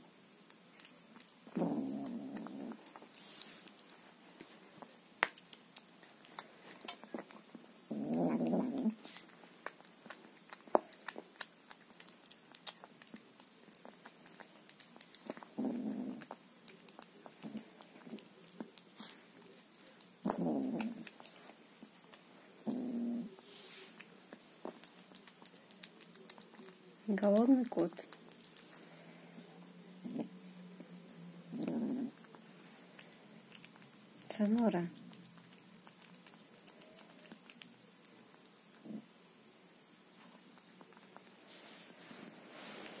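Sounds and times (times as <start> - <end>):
kitten chewing and crunching: 0.0 - 43.0
cat vocalizing: 0.8 - 3.4, 5.7 - 27.0, 31.4 - 34.3, 35.0 - 39.1.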